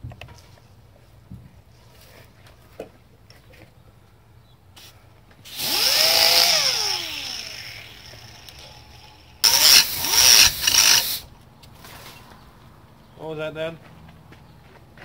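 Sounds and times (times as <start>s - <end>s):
pneumatic cutoff wheel grinding steel: 5.4s - 11.3s
air hiss: 9.4s - 11.3s.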